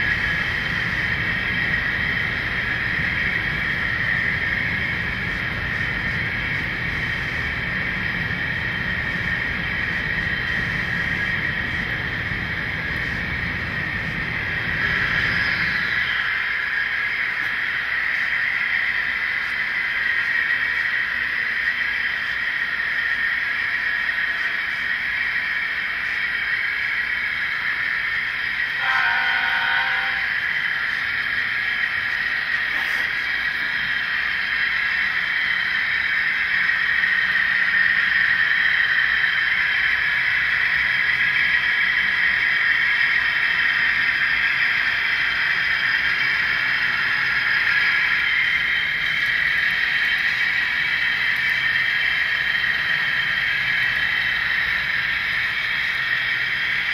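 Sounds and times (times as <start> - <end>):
model train rolling whir: 0.0 - 56.9
train horn blast: 28.8 - 30.5.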